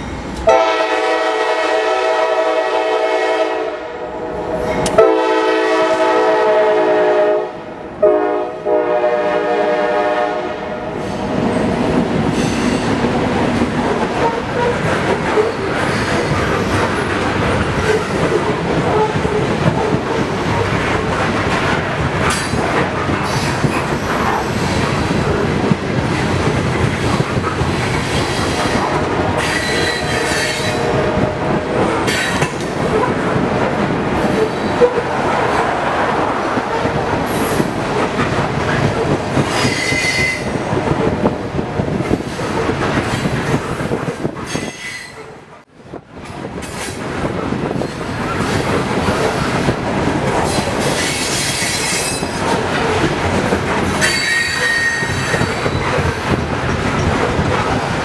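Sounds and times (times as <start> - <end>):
train wheels rumbling and clacking: 0.0 - 3.4, 4.1 - 58.0
high-pitched wheel squeal: 54.0 - 55.8.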